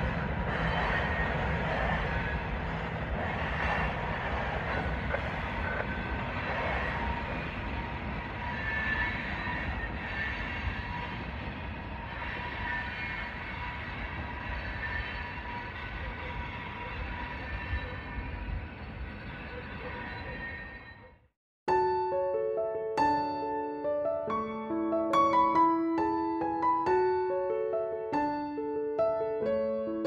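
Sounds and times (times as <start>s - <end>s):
train wheels rumbling on rail: 0.0s - 20.8s.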